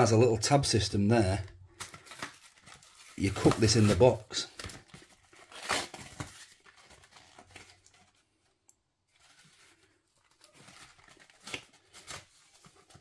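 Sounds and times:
cardboard box and paper rustling: 1.8s - 8.3s, 9.1s - 13.0s.

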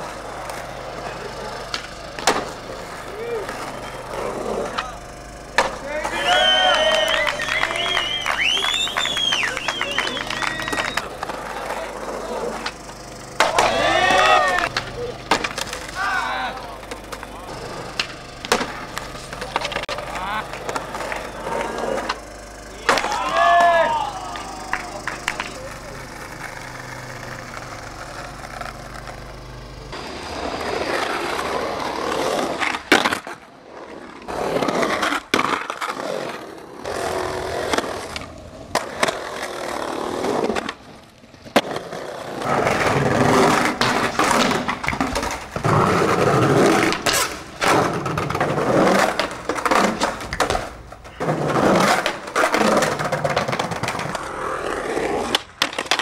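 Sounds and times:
skateboard scraping edges: 0.0s - 5.0s, 5.6s - 56.0s
skateboard wheels rolling on concrete: 0.0s - 56.0s
skateboard snaps and landing slaps: 1.6s - 2.6s, 4.7s - 7.6s, 13.4s - 16.0s, 17.9s - 21.2s, 22.8s - 25.6s, 32.6s - 33.4s, 37.7s - 39.4s, 46.6s - 51.0s, 51.7s - 54.2s, 55.2s - 56.0s.

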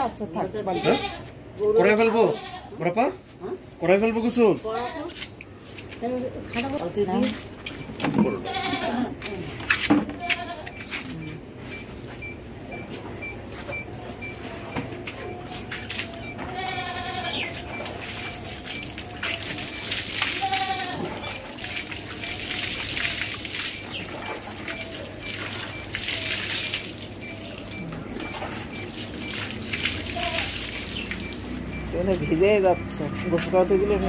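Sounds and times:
goat bleating: 0.0s - 2.8s, 4.6s - 5.3s, 8.2s - 9.2s, 10.2s - 10.9s, 16.5s - 17.6s, 20.3s - 21.3s
water splashing on concrete: 15.1s - 34.0s.

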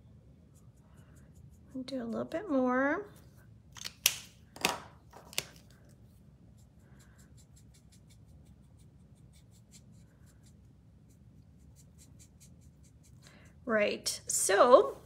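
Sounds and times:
marker cap clicks: 3.8s - 5.5s
marker nib scratching on card: 6.5s - 13.2s.

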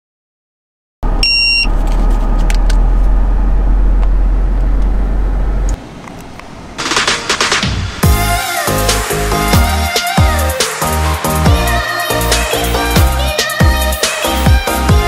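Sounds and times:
car engine rumbling: 1.0s - 9.4s.

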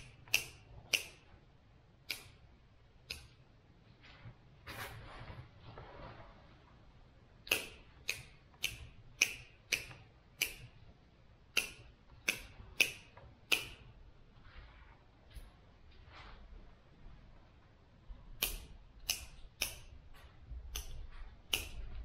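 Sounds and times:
pruning shears snipping branches: 7.5s - 10.7s, 11.6s - 13.8s, 20.7s - 21.8s.

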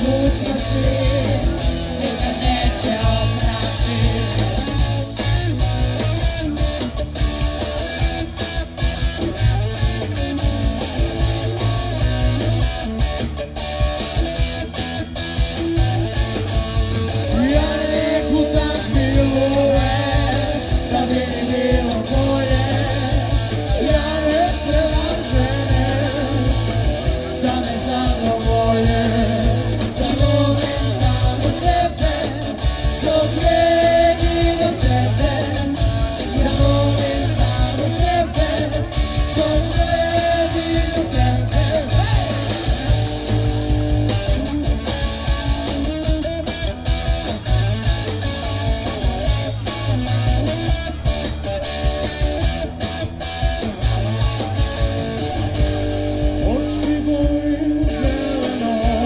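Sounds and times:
person singing: 0.0s - 5.0s, 17.2s - 26.7s, 27.4s - 42.8s, 56.2s - 59.0s
rock band playing: 0.0s - 59.0s.

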